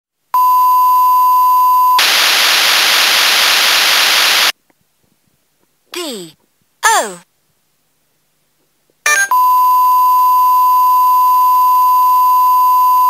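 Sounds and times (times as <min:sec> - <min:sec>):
loud hiss of noise: 0:02.0 - 0:04.6
electronic test beep: 0:09.1 - 0:13.0.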